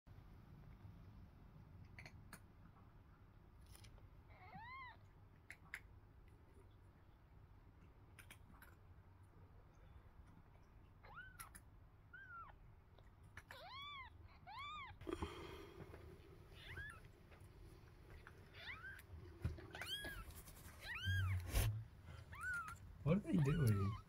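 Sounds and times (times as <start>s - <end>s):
kittens mewing: 16.5s - 17.2s, 18.1s - 24.0s.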